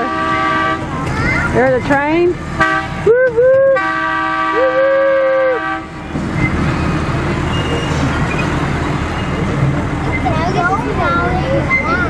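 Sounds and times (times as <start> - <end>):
train rumbling on track: 0.0 - 12.0
person calling woo: 3.0 - 3.9, 4.5 - 5.6
train whistle chord: 3.7 - 5.9.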